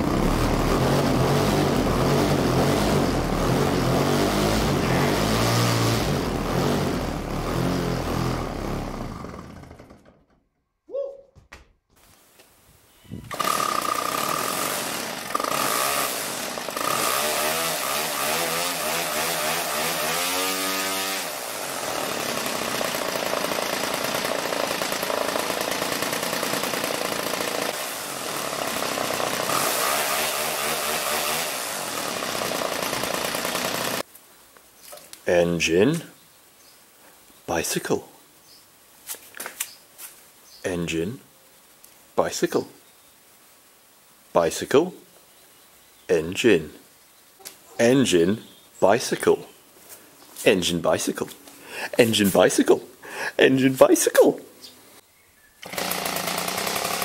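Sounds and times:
two-stroke engine running: 0:00.0 - 0:10.2, 0:13.3 - 0:34.0, 0:55.6 - 0:57.0.

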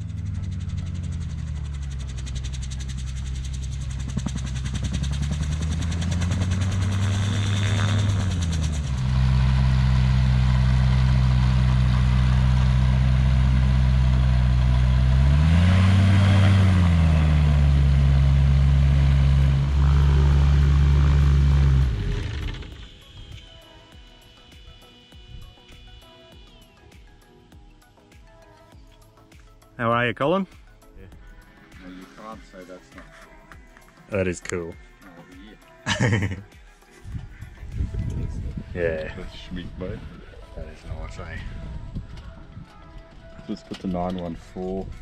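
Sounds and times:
aircraft engine running: 0:00.0 - 0:26.6.

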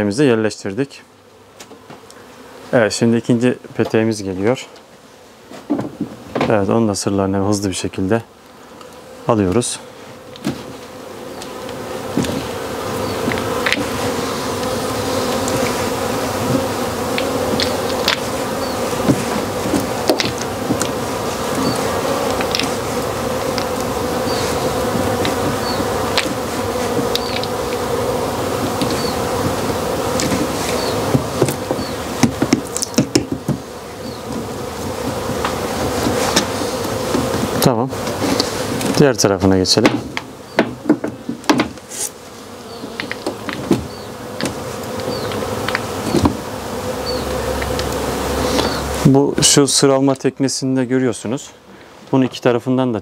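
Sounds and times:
honeybees buzzing: 0:00.0 - 0:53.0.

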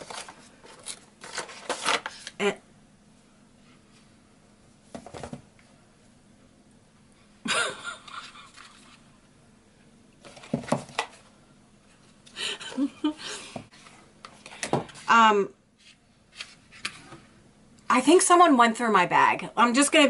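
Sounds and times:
packaging tray scraping: 0:00.0 - 0:02.3.

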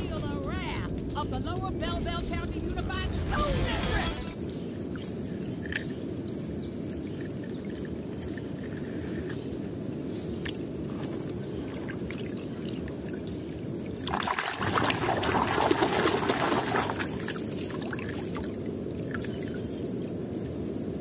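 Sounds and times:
low background rumble: 0:00.0 - 0:12.8
hand splashing water in a tub: 0:14.0 - 0:18.5.

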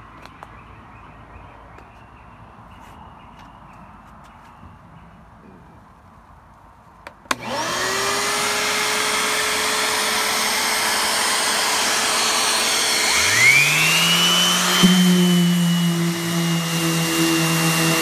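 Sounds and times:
orbital sander whining: 0:07.3 - 0:18.0
shop vac motor whine: 0:07.3 - 0:18.0.

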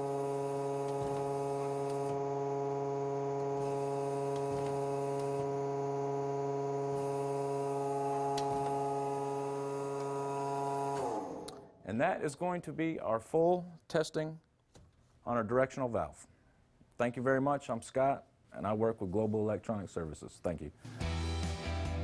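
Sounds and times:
hydraulic pump humming: 0:00.0 - 0:11.7.

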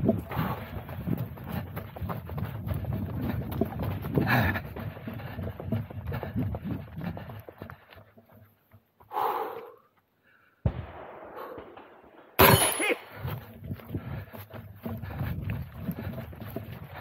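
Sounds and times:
loud gunshot: 0:10.6 - 0:13.1
short dull burst: 0:10.6 - 0:13.3.

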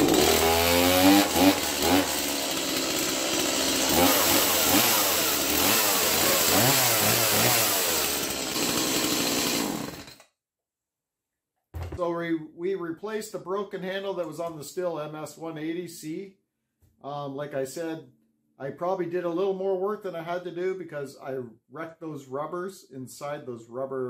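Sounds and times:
chainsaw engine revving: 0:00.0 - 0:10.2.

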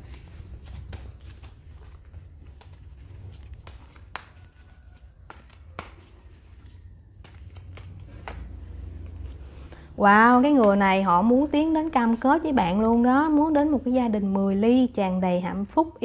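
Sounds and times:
cards clicking and rustling: 0:00.0 - 0:09.8.

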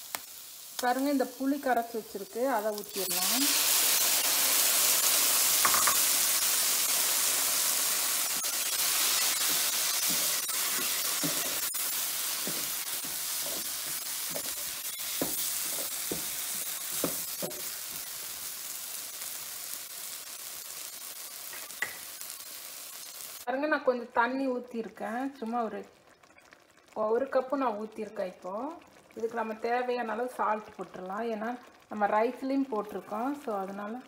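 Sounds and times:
vegetables sizzling in a pan: 0:00.0 - 0:34.0
wooden spatula scraping a pan: 0:08.3 - 0:18.0.

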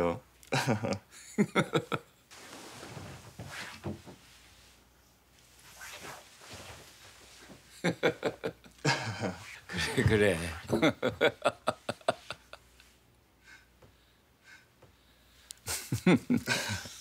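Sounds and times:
rustling of padded jacket: 0:02.3 - 0:04.7, 0:05.4 - 0:07.7
light movements on floor: 0:02.3 - 0:08.4.

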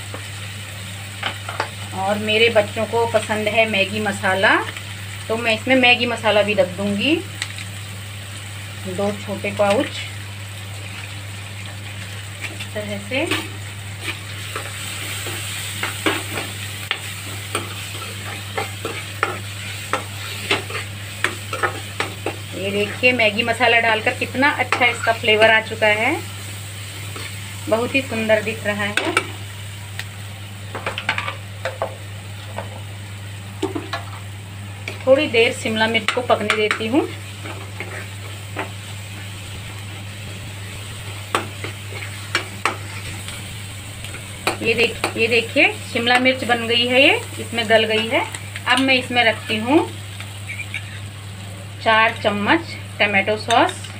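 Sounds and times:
vegetables sizzling in pan: 0:00.0 - 0:53.9
steady low hum: 0:12.1 - 0:53.1
spatula scraping metal pan: 0:50.5 - 0:51.0.

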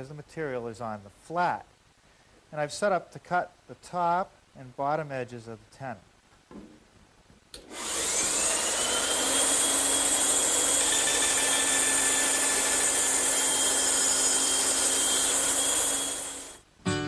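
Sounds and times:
bandsaw whining: 0:07.6 - 0:16.6.

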